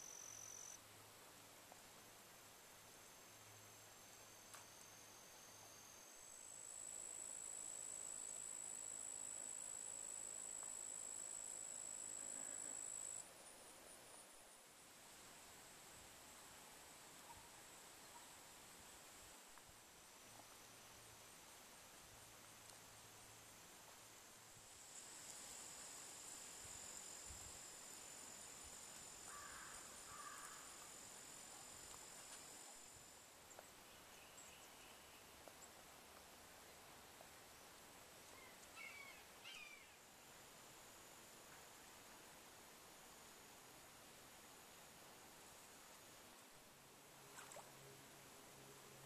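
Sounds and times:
high-pitched insect trill: 0.0 - 0.8, 2.9 - 13.2, 24.6 - 33.3
faint background hiss: 0.0 - 49.0.

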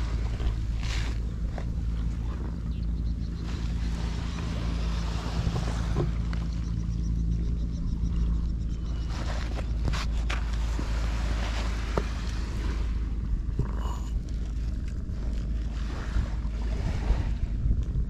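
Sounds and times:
waves washing on beach: 0.0 - 2.4, 3.4 - 6.3, 9.0 - 14.5, 15.1 - 17.8
wind buffeting microphone: 0.0 - 18.0.

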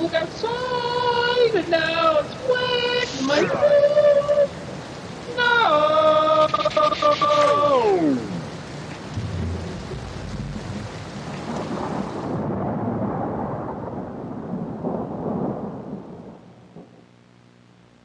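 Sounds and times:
heavy rain: 0.0 - 18.0
low rolling thunder: 9.1 - 17.1.

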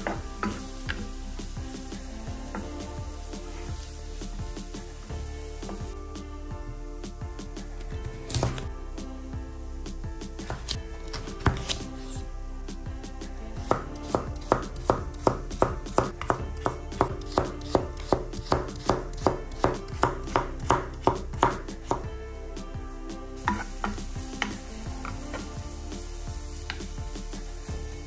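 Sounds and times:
knife chopping on cutting board: 8.3 - 8.6, 10.4 - 11.8, 13.6 - 22.0.

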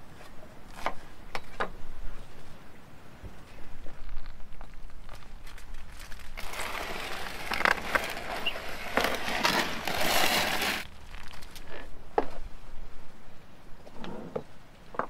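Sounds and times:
foil crinkling: 4.8 - 11.9
metal tray scraping: 6.4 - 10.9.

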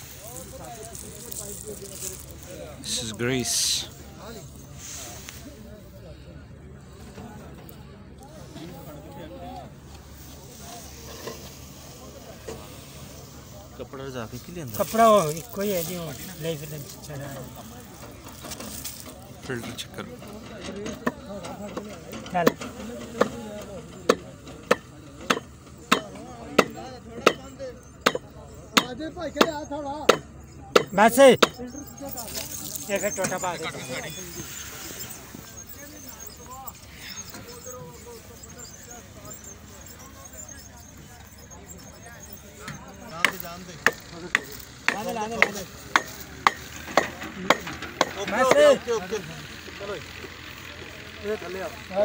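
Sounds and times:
faint scraping: 0.0 - 24.0, 31.8 - 47.9
hammering knocks: 24.0 - 31.6, 42.7 - 48.6
sharp taps: 24.1 - 31.6, 42.6 - 48.6.

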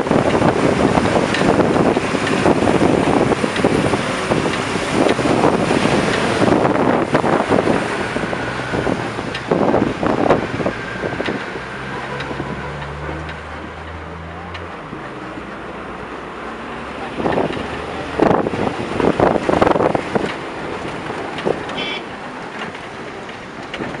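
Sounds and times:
wind buffeting microphone: 0.0 - 14.0, 17.0 - 21.8
low vehicle engine hum: 0.0 - 24.0.

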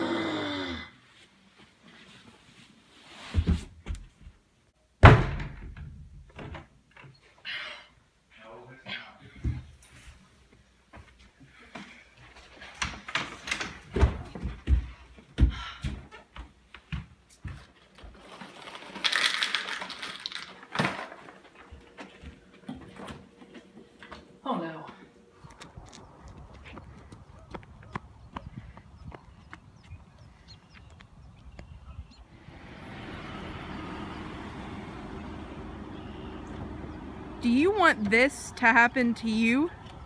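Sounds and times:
door slamming shut: 5.0 - 6.6
small hard pieces clattering: 18.2 - 21.4.

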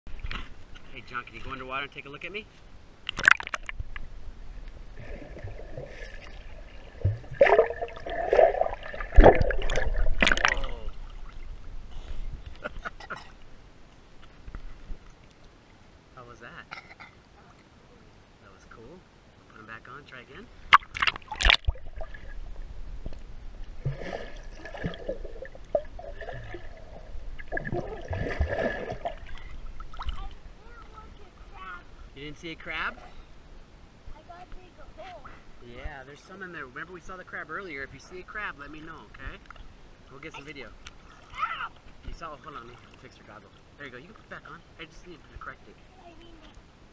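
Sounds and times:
underwater gurgling and bubbling: 4.9 - 11.1, 23.7 - 29.9
water sloshing splashes: 5.0 - 11.6, 20.6 - 22.7, 23.7 - 31.5, 40.8 - 44.4.

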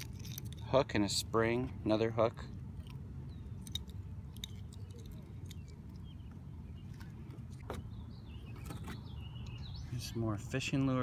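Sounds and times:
small metallic clicks: 0.0 - 0.7, 3.6 - 6.1.

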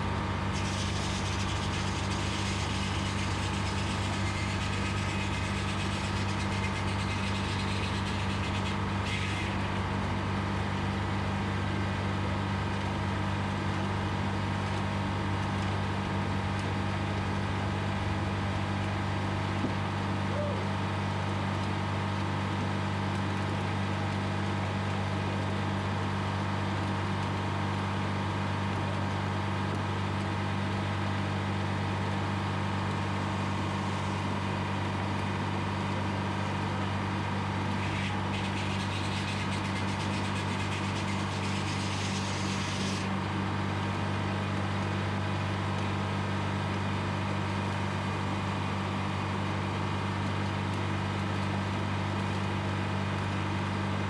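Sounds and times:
diesel engine running: 0.0 - 11.7
saw blade rasping through log: 37.8 - 43.1.

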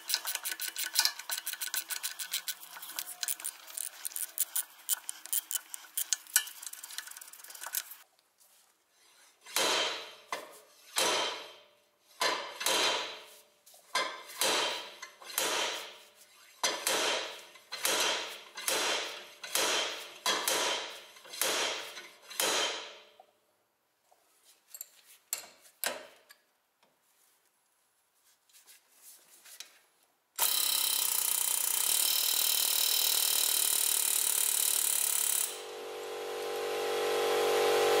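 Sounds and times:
rapid metal clicks: 0.0 - 8.0.

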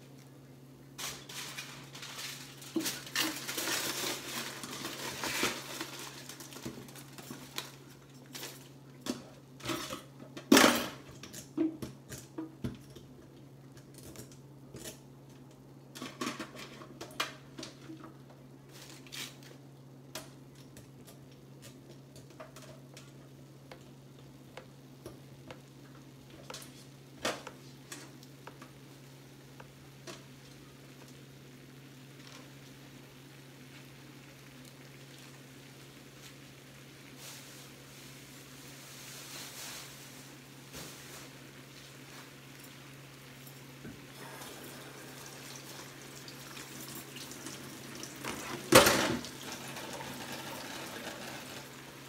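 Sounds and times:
dishes and pans clattering: 16.0 - 17.8.

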